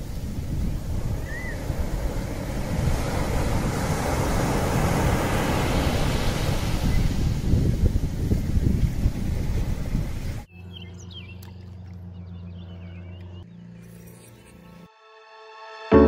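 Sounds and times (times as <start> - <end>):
waves washing: 0.0 - 10.5
wind rumbling on microphone: 0.0 - 13.2.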